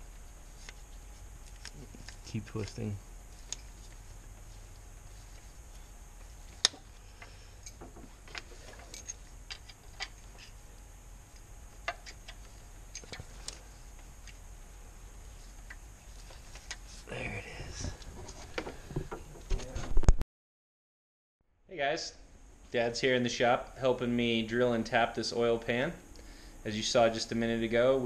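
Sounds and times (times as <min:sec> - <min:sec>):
low hum: 0:00.0 - 0:19.8.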